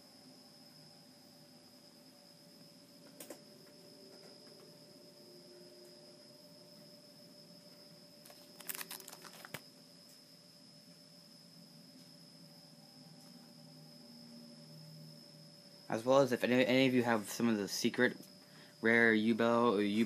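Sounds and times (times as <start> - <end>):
faint high whine: 0.0 - 20.0
plastic card sleeves crackling: 8.2 - 9.6.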